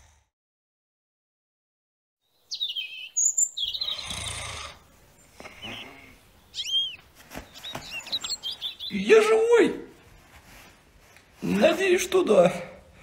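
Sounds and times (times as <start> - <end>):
cartoon birds tweeting: 2.5 - 4.4, 5.6 - 9.4.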